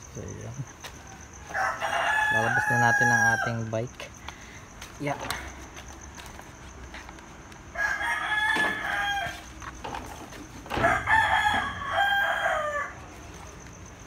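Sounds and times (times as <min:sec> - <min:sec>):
rooster crowing: 0:01.0 - 0:03.8, 0:07.7 - 0:09.6, 0:10.6 - 0:13.3.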